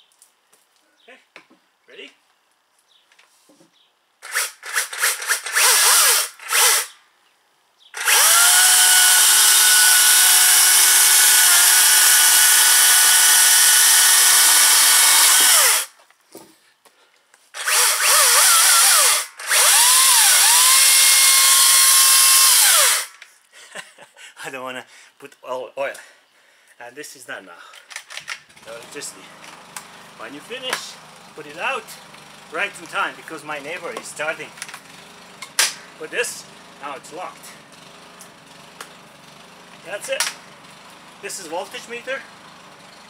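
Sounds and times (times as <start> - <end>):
cordless chainsaw running: 4.2 - 7.0, 8.0 - 15.9, 17.6 - 23.2, 28.5 - 43.0.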